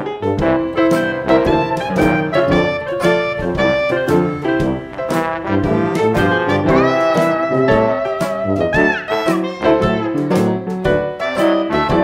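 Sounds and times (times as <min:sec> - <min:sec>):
instrumental background music: 0:00.0 - 0:12.0.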